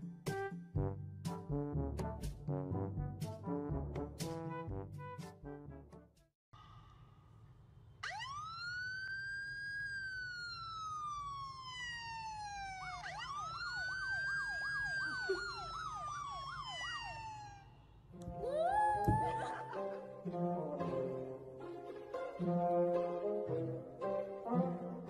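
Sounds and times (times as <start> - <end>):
police siren wailing and yelping: 8.0 - 17.8, 18.4 - 19.8.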